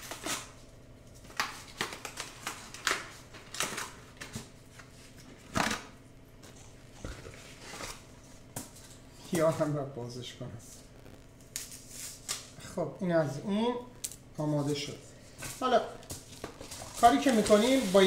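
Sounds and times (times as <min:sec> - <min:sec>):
paper and foil crinkling: 0:01.2 - 0:05.8, 0:11.4 - 0:12.6, 0:14.6 - 0:18.0.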